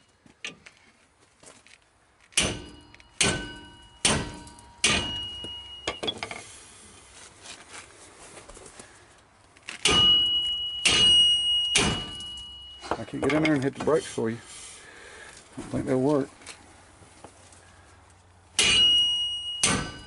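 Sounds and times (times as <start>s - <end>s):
hammer striking metal: 2.4s - 6.5s, 9.8s - 13.7s, 18.6s - 20.0s.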